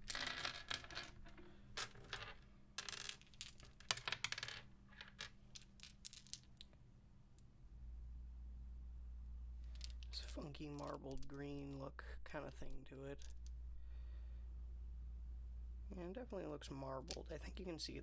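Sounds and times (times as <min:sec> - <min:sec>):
plastic dice clattering on wood: 0:00.0 - 0:06.8, 0:09.6 - 0:11.8, 0:13.1 - 0:13.6.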